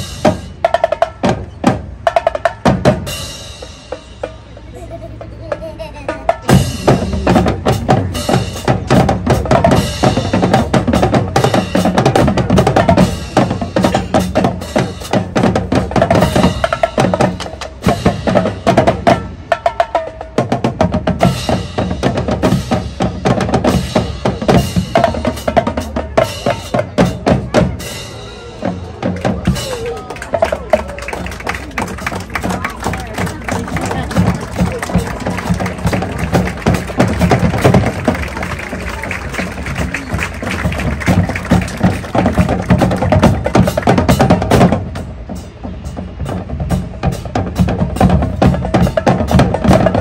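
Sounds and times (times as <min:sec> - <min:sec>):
snare and bass drums: 0:00.0 - 0:04.6, 0:05.5 - 0:50.0.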